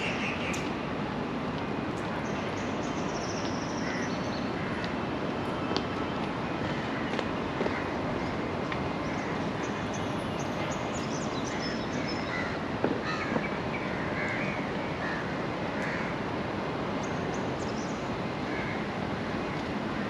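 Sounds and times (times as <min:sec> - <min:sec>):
city background hum: 0:00.0 - 0:20.0
birds cawing: 0:03.7 - 0:04.9, 0:11.5 - 0:16.2.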